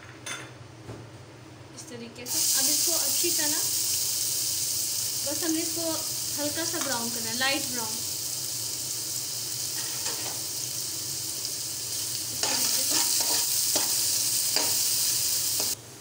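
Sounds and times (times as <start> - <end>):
onions sizzling in oil: 2.3 - 15.8
spatula scraping a pan: 12.4 - 14.0.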